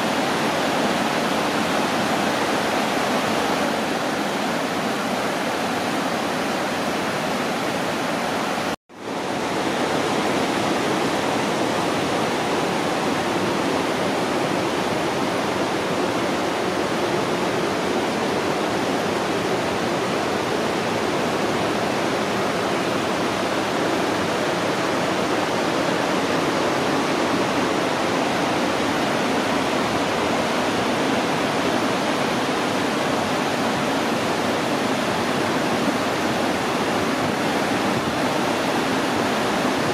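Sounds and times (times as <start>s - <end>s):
water rushing over rocks: 0.0s - 39.9s.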